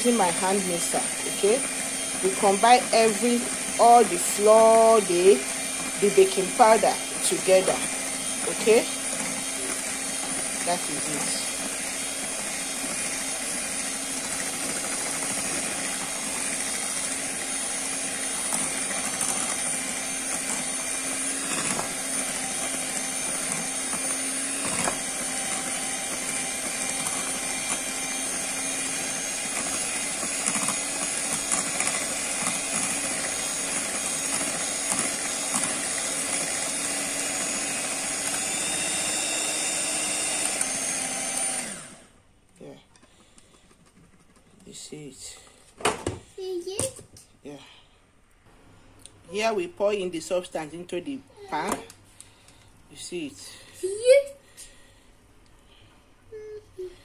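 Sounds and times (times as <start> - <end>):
electric hand mixer whine: 0.0 - 42.3, 49.3 - 51.8.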